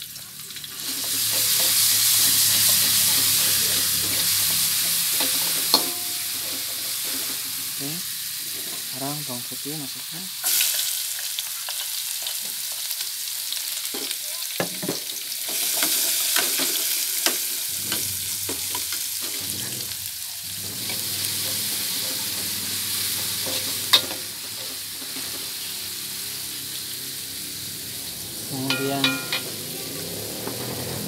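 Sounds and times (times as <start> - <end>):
garlic sizzling in oil: 0.0 - 31.0
metal spatula scraping a pot: 0.8 - 7.7, 17.3 - 25.4
sharp metal clink: 28.7 - 29.6.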